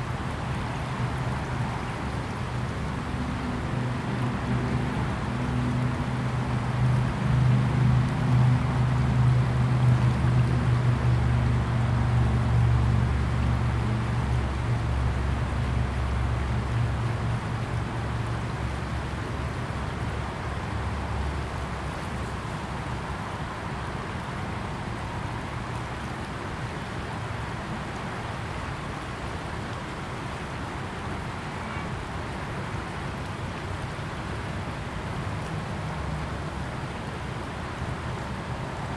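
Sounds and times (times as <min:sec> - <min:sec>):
river water rushing: 0:00.0 - 0:38.9.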